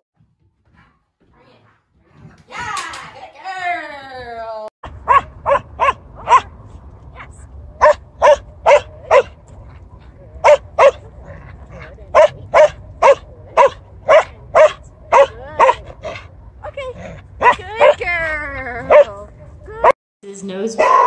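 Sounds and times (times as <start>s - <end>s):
dog barking: 5.0s - 6.5s, 7.8s - 9.4s, 10.4s - 11.1s, 12.1s - 16.2s, 17.4s - 18.0s, 18.9s - 19.2s.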